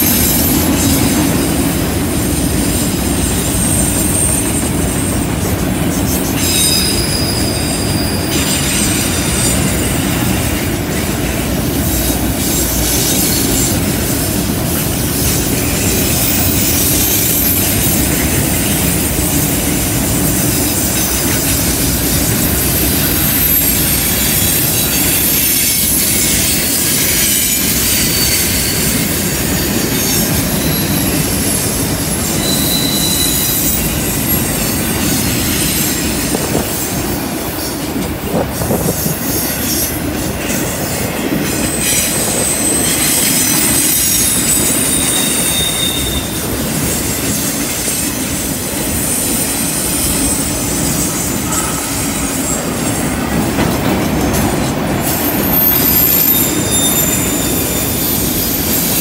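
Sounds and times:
train wheels rumbling on rail: 0:00.0 - 0:59.0
wheel flange squeal: 0:02.7 - 0:10.2, 0:20.3 - 0:36.9, 0:38.6 - 0:53.0, 0:55.0 - 0:59.0.

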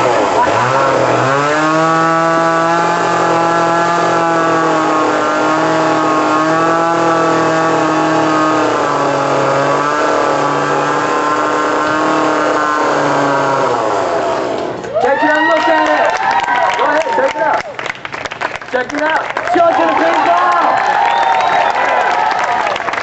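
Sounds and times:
chainsaw revving: 0:00.0 - 0:14.9.

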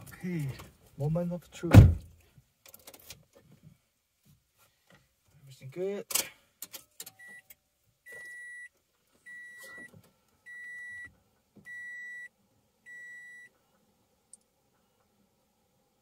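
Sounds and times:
dashboard warning chime beeping: 0:07.1 - 0:07.5, 0:08.1 - 0:08.7, 0:09.3 - 0:09.9, 0:10.5 - 0:12.3, 0:12.9 - 0:13.5.

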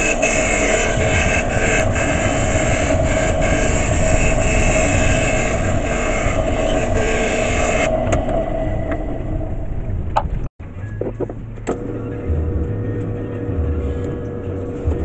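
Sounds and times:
scroll saw running: 0:00.0 - 0:08.0
saw blade cutting wood: 0:00.0 - 0:08.2.

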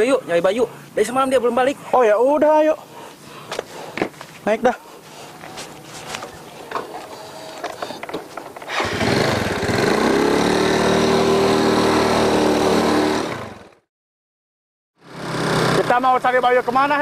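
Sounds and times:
faint knocks and shuffles: 0:03.4 - 0:08.6
scooter engine pulling away: 0:08.7 - 0:13.8, 0:15.0 - 0:16.0.

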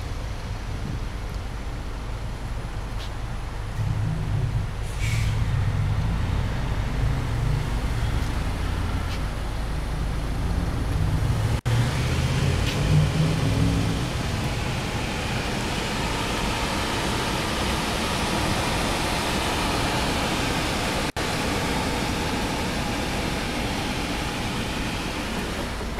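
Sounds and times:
car engine idling: 0:00.0 - 0:25.9.

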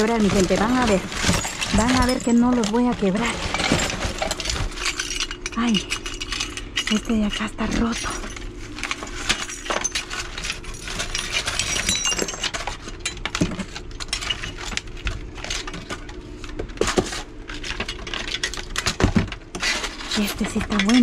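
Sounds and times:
debris clattering: 0:00.0 - 0:15.8
broken glass clinking: 0:10.7 - 0:12.6.

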